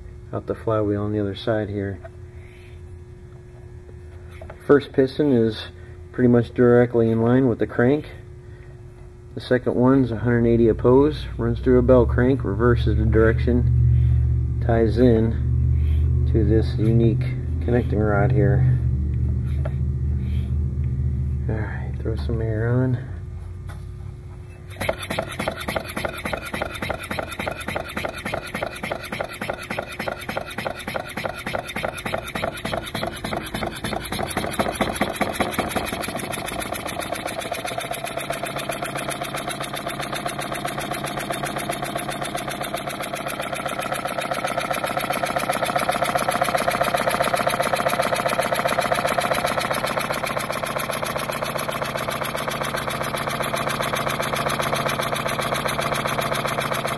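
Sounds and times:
compressed air engine puffing: 13.8s - 14.4s, 15.6s - 16.2s, 19.4s - 20.7s, 24.7s - 56.9s.

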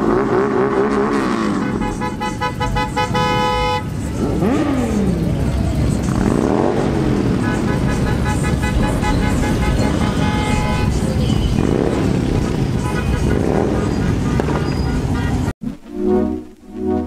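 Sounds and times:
idling and passing vehicles: 0.0s - 15.6s
car horn honking: 1.3s - 4.6s, 7.2s - 17.0s.

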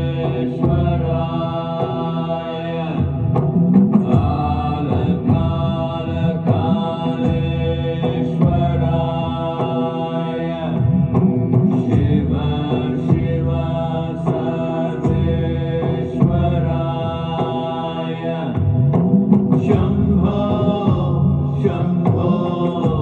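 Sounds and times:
voices chanting: 0.0s - 3.2s, 4.0s - 18.7s
steady low drone: 0.0s - 23.0s.

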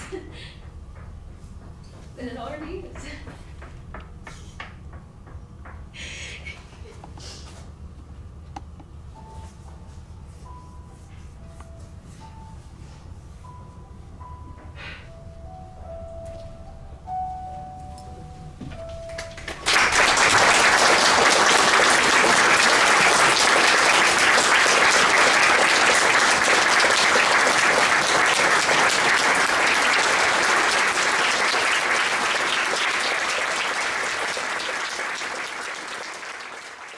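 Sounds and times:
audience applause: 19.1s - 36.9s.

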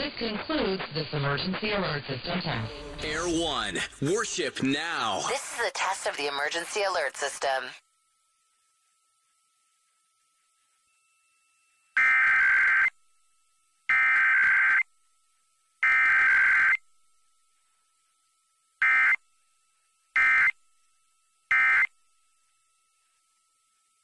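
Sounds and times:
two-tone digital data bursts: 20.2s - 20.6s.

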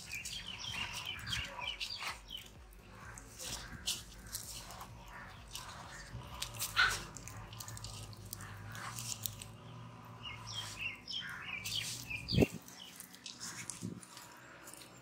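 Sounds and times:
birds chirping: 0.0s - 15.0s
crackles: 0.0s - 15.0s
wet squishing of batter: 0.0s - 15.0s.

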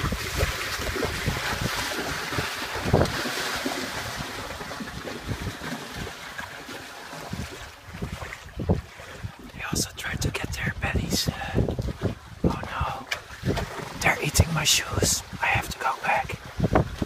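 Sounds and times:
hoof pawing water: 0.0s - 9.6s, 11.3s - 14.2s
horses splashing in water: 0.0s - 9.6s, 11.4s - 14.0s
wind buffeting microphone: 0.0s - 17.0s.

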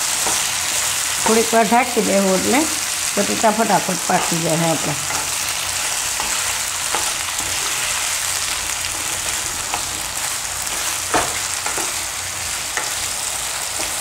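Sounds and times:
potatoes sizzling in hot oil: 0.0s - 14.0s
wooden spatula scraping and knocking pan: 8.9s - 14.0s.

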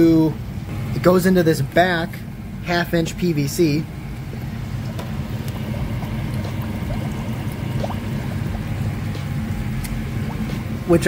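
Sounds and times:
low mechanical hum: 0.0s - 11.0s
water running and bubbling: 3.9s - 10.8s
water gurgles: 4.2s - 9.1s, 10.1s - 10.7s.

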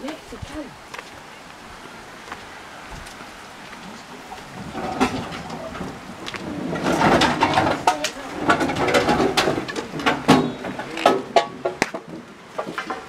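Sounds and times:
sticks clattering in metal fire pit: 3.8s - 13.0s.

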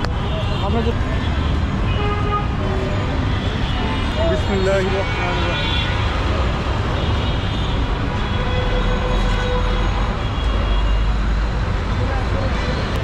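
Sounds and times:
city traffic: 0.0s - 13.0s.

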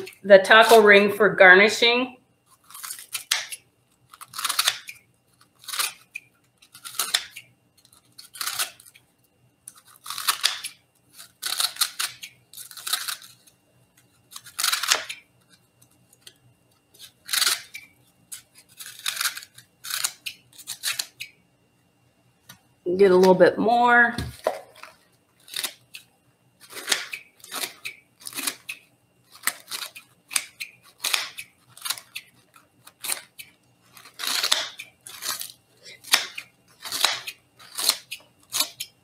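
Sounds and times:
blades crunching through lettuce: 2.5s - 9.0s, 9.7s - 15.2s, 26.6s - 38.9s.

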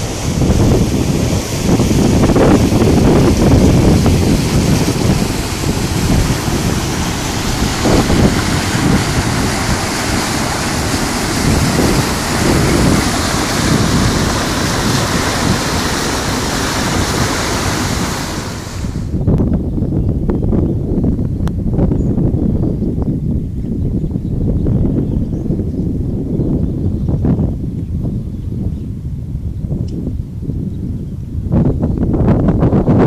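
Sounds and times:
river water rushing over rocks: 0.0s - 19.1s
wind buffeting microphone: 0.0s - 33.0s.

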